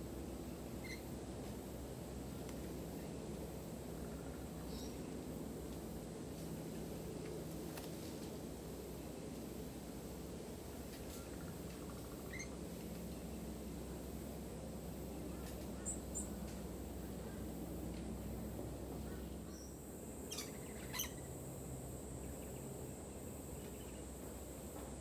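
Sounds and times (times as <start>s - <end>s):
low background hum: 0.0s - 25.0s
birds chirping: 19.0s - 21.4s
sharp bird calls: 20.3s - 21.3s.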